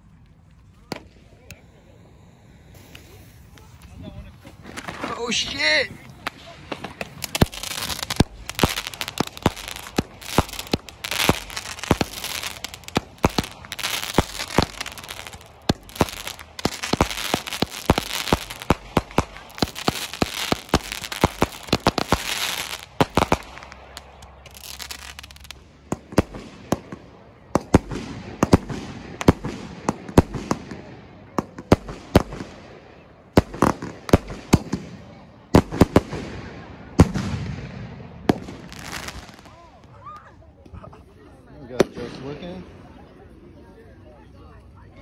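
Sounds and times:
firecrackers popping: 0:00.0 - 0:40.4.

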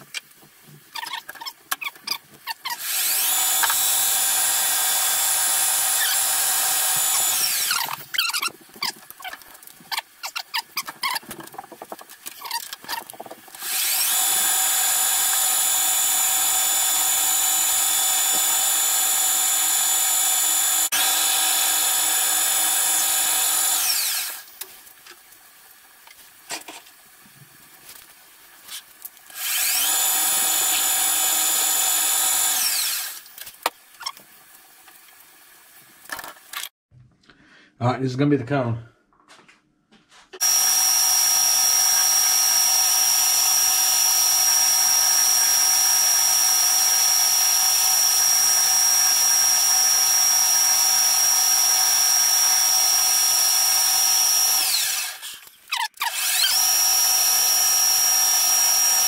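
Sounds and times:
drill boring into metal: 0:02.5 - 0:08.5, 0:13.6 - 0:24.5, 0:29.3 - 0:33.2, 0:40.4 - 0:59.0
clicks and knocks of handling: 0:07.9 - 0:13.5.

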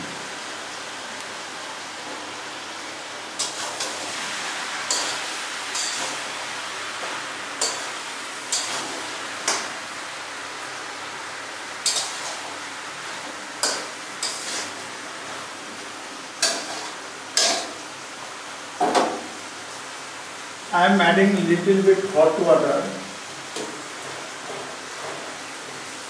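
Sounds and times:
frying hiss: 0:00.0 - 0:26.0
metal spatula clinking on pan: 0:04.9 - 0:05.2, 0:05.8 - 0:06.1, 0:07.6 - 0:07.9.

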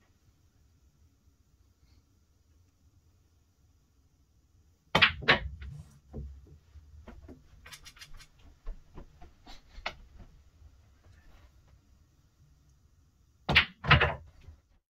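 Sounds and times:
balls rolling and knocking: 0:05.0 - 0:10.3, 0:13.5 - 0:14.7.

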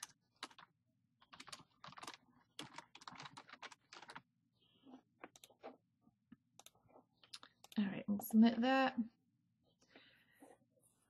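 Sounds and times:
typing on computer keyboard: 0:00.0 - 0:04.2.

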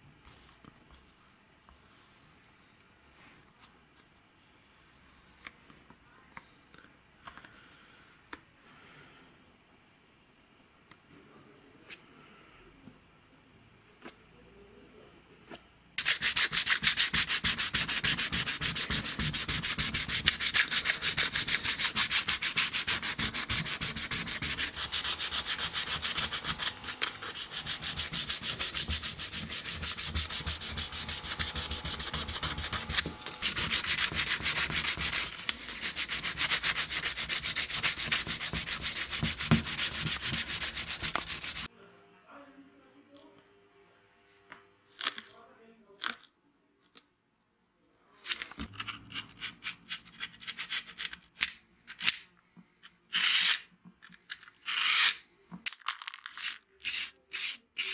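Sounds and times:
sandpaper rubbing: 0:16.0 - 0:41.7.

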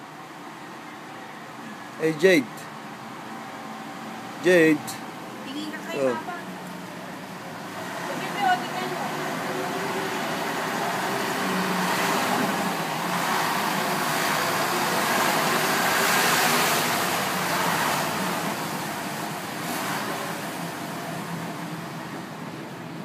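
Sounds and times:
vehicle passing: 0:04.3 - 0:21.8.

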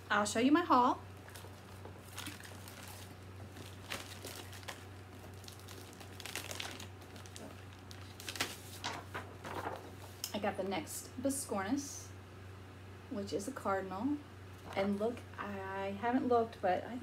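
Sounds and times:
plastic bags and paper rustling: 0:01.2 - 0:10.4.

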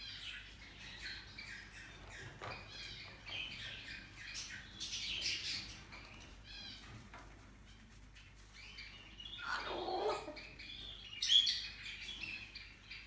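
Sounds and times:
cockatoo chirping calls: 0:08.7 - 0:11.8.

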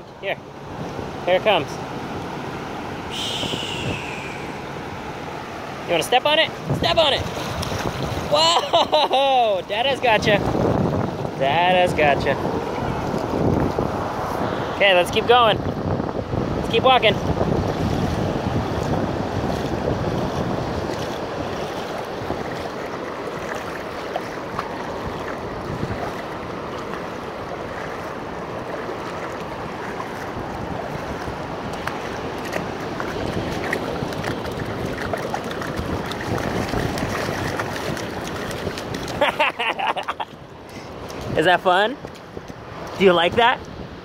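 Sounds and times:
shallow surf over sand: 0:00.0 - 0:44.0
wind on microphone: 0:03.0 - 0:05.3, 0:06.6 - 0:08.6, 0:09.7 - 0:44.0
short voice: 0:03.1 - 0:04.6.

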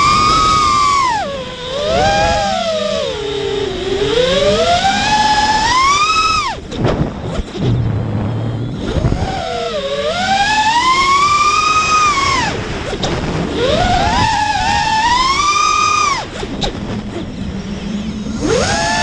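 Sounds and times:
drone motors whining: 0:00.0 - 0:19.0
wind on microphone: 0:00.0 - 0:19.0.

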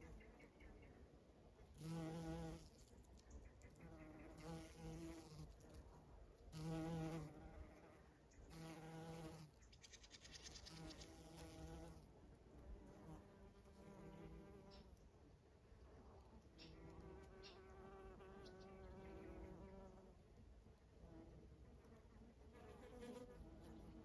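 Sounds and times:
bumblebee buzzing in flight: 0:01.8 - 0:02.7, 0:03.8 - 0:05.6, 0:06.5 - 0:09.5, 0:10.3 - 0:12.0, 0:21.8 - 0:24.0.

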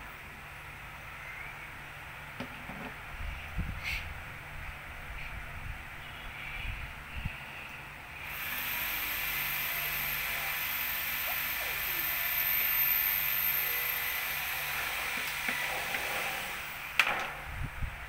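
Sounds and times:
thin high whine: 0:06.0 - 0:18.0
steady hiss: 0:06.4 - 0:17.8.

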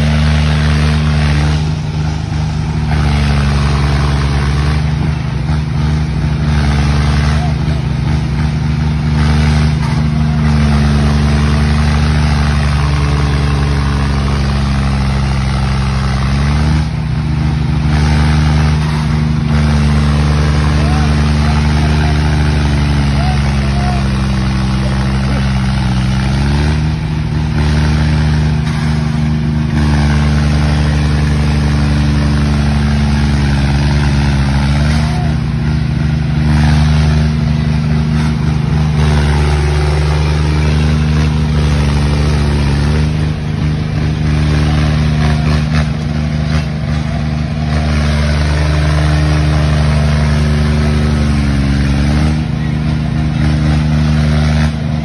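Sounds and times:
tractor diesel engines under load: 0:00.0 - 0:55.0.

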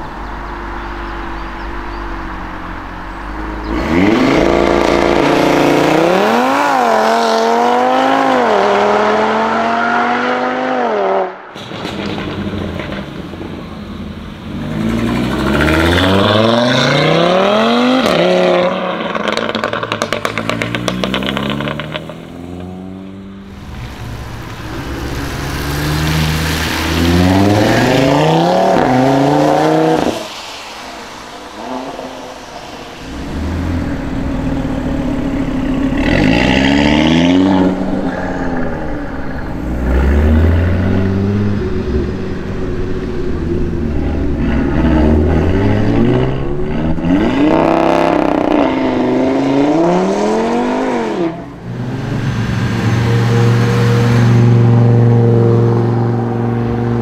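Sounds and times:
car engines accelerating hard: 0:00.0 - 0:11.4, 0:12.2 - 0:57.0
exhaust crackling: 0:11.6 - 0:57.0.

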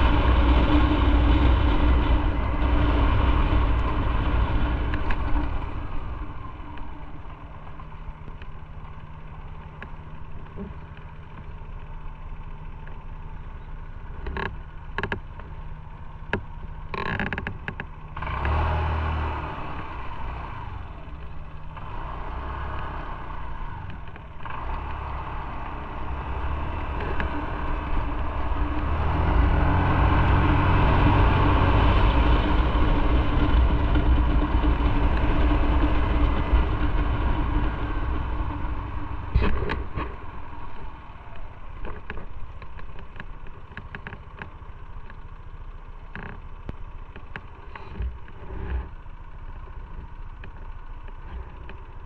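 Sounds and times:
motorcycle engine: 0:00.0 - 0:52.0
road noise: 0:00.0 - 0:52.0.

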